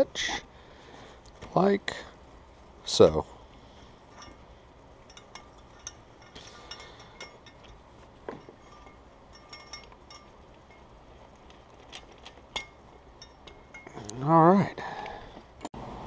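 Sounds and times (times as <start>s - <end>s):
light metallic clicks and clinks: 3.0s - 15.2s.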